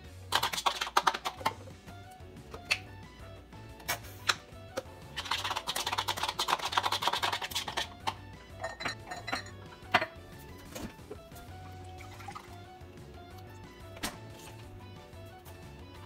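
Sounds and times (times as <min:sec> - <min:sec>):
background music: 0:00.0 - 0:16.0
metal spoon clinking against bowl: 0:08.6 - 0:10.1.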